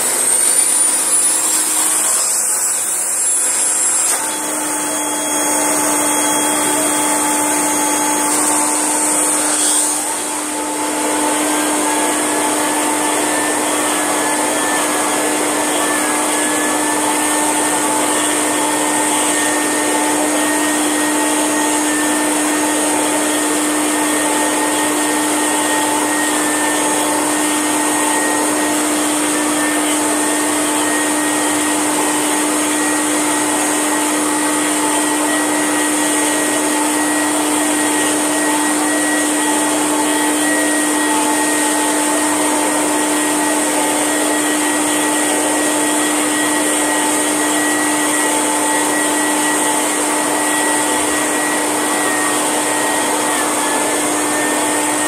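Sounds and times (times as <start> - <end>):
vacuum cleaner running: 0.0 - 55.0
vacuum head on carpet: 3.5 - 20.6.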